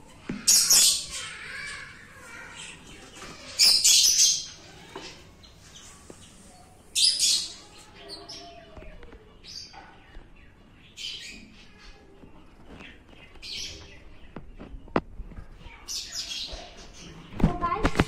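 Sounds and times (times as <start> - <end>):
lovebirds shrill harsh calls: 3.4 - 5.1.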